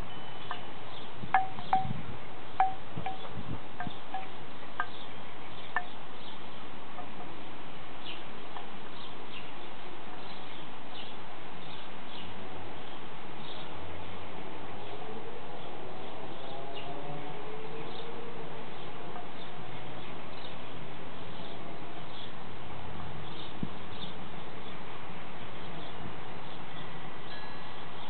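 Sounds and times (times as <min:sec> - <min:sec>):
wooden wind chime knocking: 0:01.3 - 0:02.0, 0:02.6 - 0:05.0.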